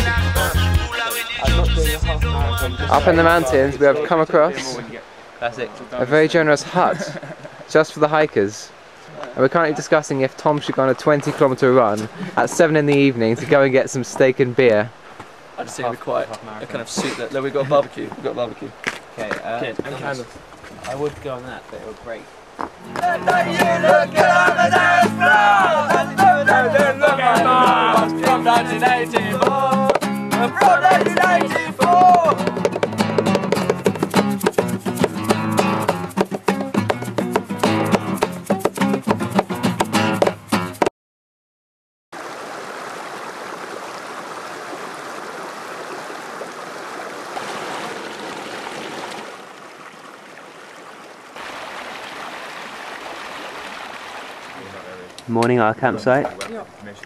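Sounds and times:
men singing along: 0.0 - 3.8, 22.9 - 32.5
acoustic guitar strumming: 0.0 - 4.0, 22.8 - 40.9
stream running over rocks: 3.0 - 39.1, 42.2 - 57.0.

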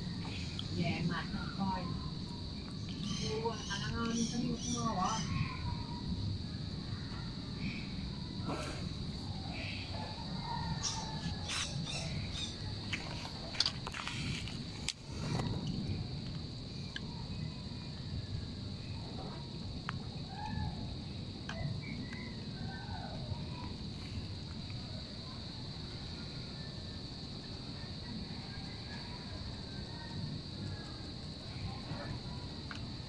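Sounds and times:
steady high-pitched hum: 0.0 - 33.0
birds chirping: 2.6 - 5.8, 10.8 - 13.2.

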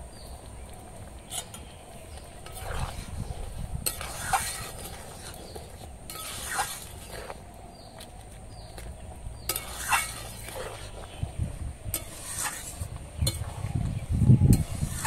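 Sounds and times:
metal spatula scraping a wok: 2.4 - 7.4, 9.4 - 11.3, 11.9 - 13.8, 14.5 - 15.0.

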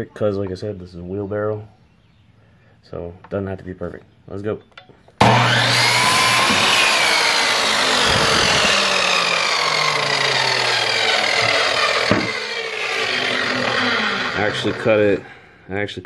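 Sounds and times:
miter saw cutting wood: 5.2 - 15.4.

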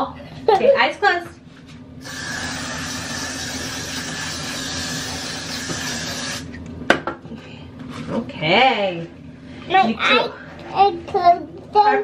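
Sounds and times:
aerosol can spraying hiss: 2.0 - 6.5.

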